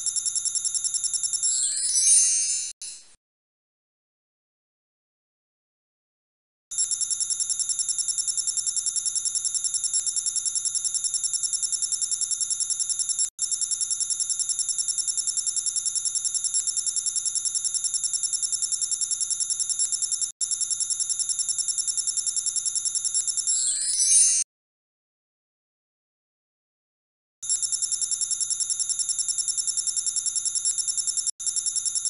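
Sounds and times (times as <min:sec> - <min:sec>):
rapid electronic ringing: 0:00.0 - 0:03.0.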